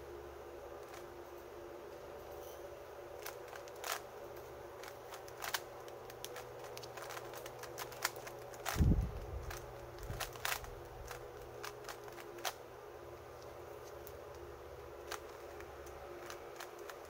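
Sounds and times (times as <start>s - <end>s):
faint steady hum: 0.0s - 17.0s
puzzle cube clicking: 3.2s - 4.0s, 4.8s - 12.6s.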